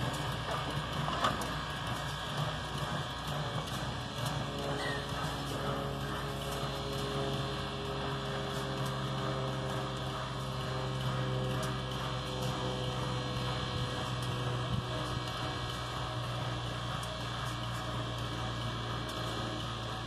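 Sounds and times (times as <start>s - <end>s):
steam locomotive low hum: 0.0s - 20.0s.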